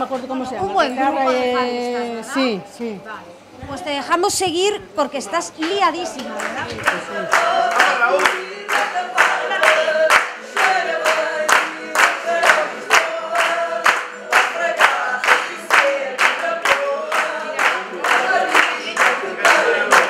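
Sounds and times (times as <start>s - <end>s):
rhythmic hand clapping: 5.6s - 20.0s
group singing: 6.2s - 20.0s.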